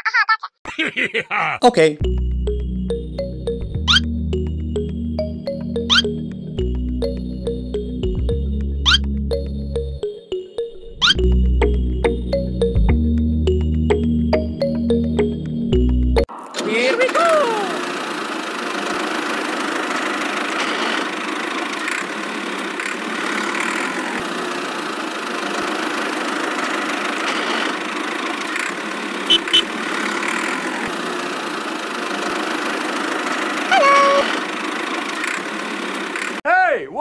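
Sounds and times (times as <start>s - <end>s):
small engine idling: 16.6s - 36.4s.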